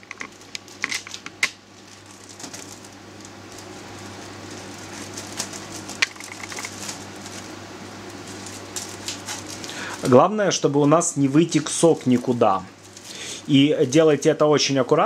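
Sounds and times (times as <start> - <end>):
scissors snipping plastic bag: 8.1 - 9.8.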